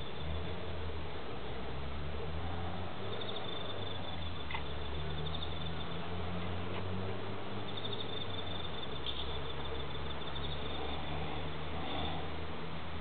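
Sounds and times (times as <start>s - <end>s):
insect chirping trill: 3.0s - 6.1s, 7.6s - 12.3s.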